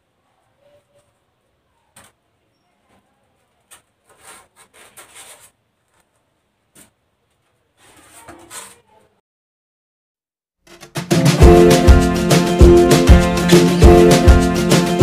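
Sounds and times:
foam sheets rubbing and scraping: 3.7s - 6.1s, 7.6s - 9.0s.

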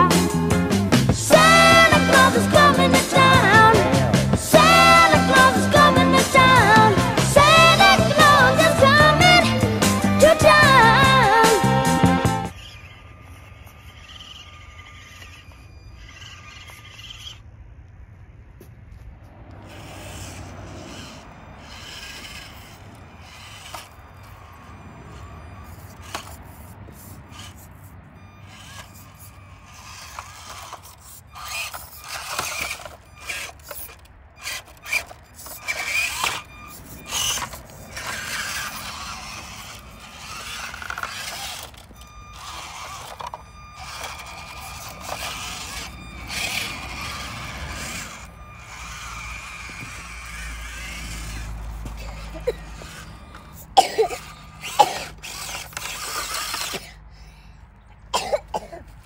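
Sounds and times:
electric motor and gears whining: 0.0s - 59.0s
tyres scraping over rock: 19.6s - 24.6s, 28.5s - 57.0s
toy truck knocking on stones: 28.5s - 56.9s.

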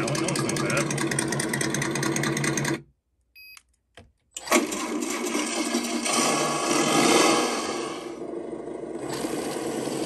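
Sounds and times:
simulated engine sound from speaker: 0.0s - 2.7s.

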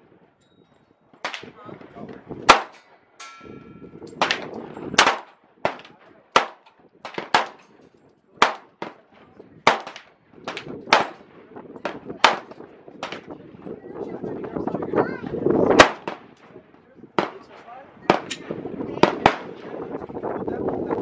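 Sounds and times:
handgun shots: 2.5s - 2.8s, 4.2s - 7.7s, 8.4s - 9.0s, 9.7s - 11.2s, 11.8s - 13.2s, 15.8s - 16.2s, 18.1s - 19.5s.

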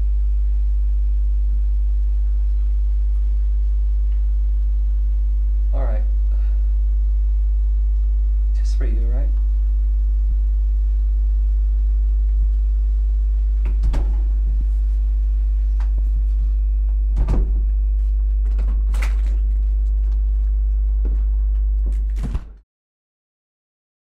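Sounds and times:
low electrical hum: 0.0s - 22.6s
front door opening: 13.6s - 14.7s, 16.8s - 19.6s.

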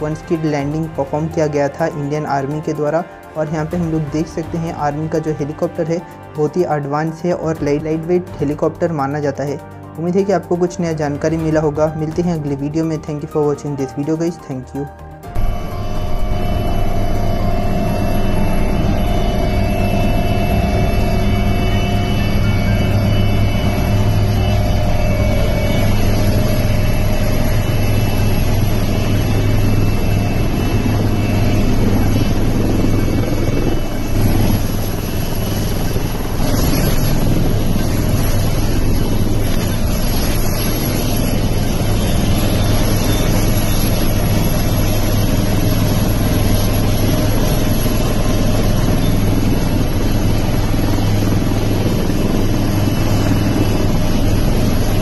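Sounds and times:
helicopter engine and rotor drone: 0.0s - 55.0s.

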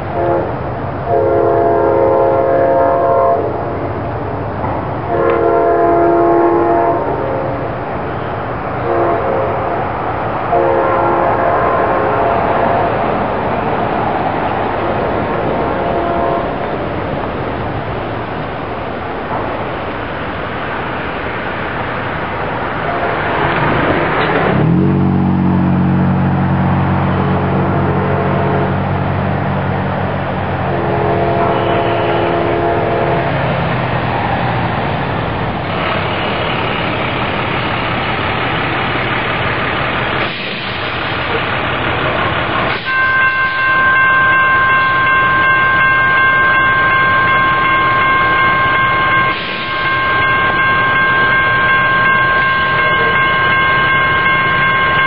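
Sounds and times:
distant train horn: 0.0s - 3.9s, 5.0s - 13.4s, 14.4s - 16.9s, 22.8s - 29.2s, 30.6s - 33.7s, 42.7s - 55.0s
train approaching: 0.0s - 55.0s
crossing bell ringing: 5.0s - 33.8s, 41.0s - 55.0s.

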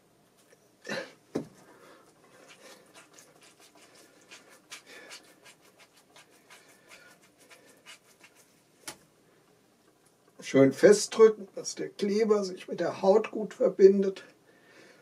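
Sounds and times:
scratching and rustling paper: 1.6s - 9.0s.

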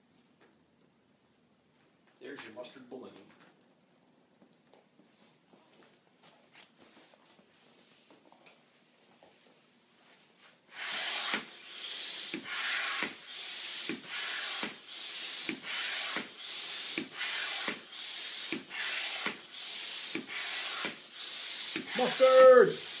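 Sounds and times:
air pump hissing: 10.7s - 23.0s.

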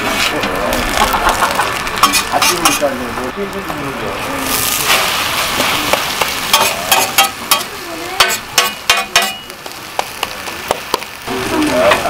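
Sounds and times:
food sizzling on griddle: 0.0s - 12.0s
metal spatula scraping griddle: 2.0s - 3.0s, 4.4s - 9.5s.

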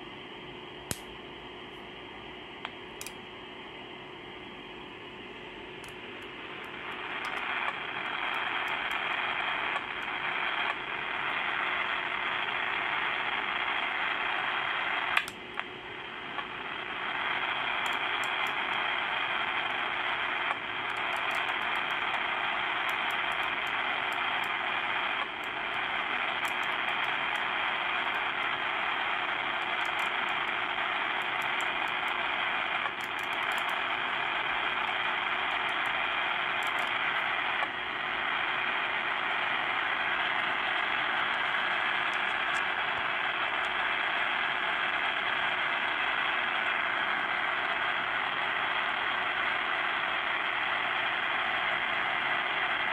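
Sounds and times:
radio static hiss: 0.0s - 52.9s
sharp clicks: 0.9s - 1.1s, 15.1s - 15.7s, 20.4s - 28.6s, 29.3s - 33.9s, 34.8s - 37.7s.

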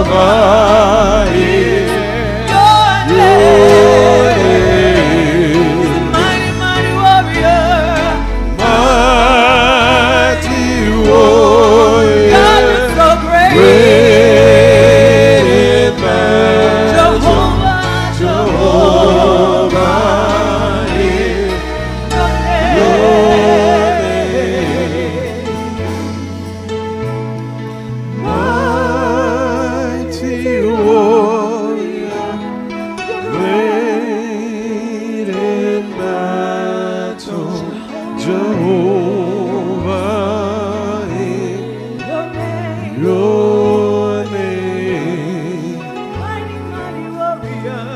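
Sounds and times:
sustained instrumental accompaniment: 0.0s - 47.9s
woman singing gospel song: 12.0s - 26.2s, 28.2s - 47.9s.

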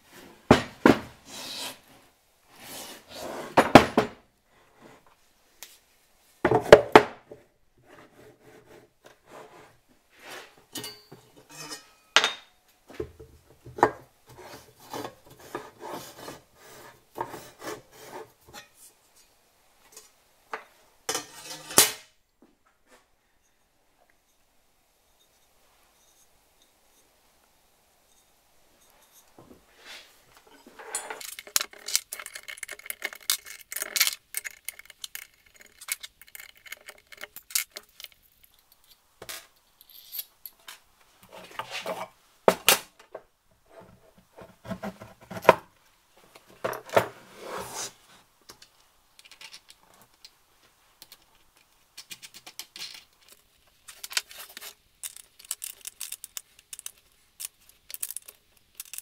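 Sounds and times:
small metal parts clicking and rattling: 30.5s - 40.8s, 48.5s - 50.4s, 51.0s - 59.0s.

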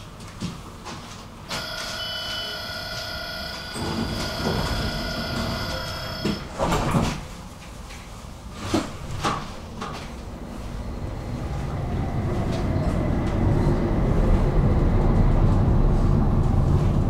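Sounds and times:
tram electronic warning tone: 1.5s - 6.6s
sliding doors shutting: 1.5s - 7.4s
low rumble: 9.6s - 17.0s.

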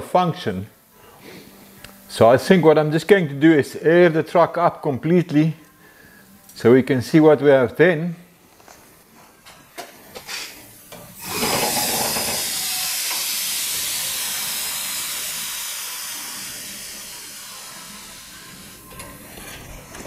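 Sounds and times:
compressed air hissing: 10.3s - 20.0s.

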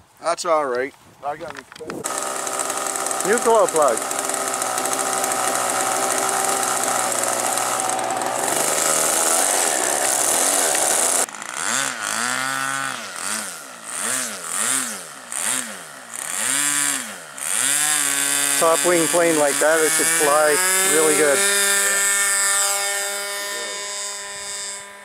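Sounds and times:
model airplane engine revving: 2.0s - 25.0s.

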